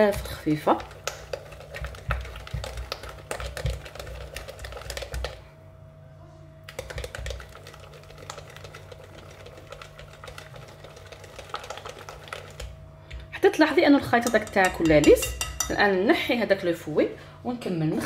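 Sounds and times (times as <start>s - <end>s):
whisk clicking against glass bowl: 0.1s - 5.4s, 6.7s - 12.7s, 14.1s - 15.9s.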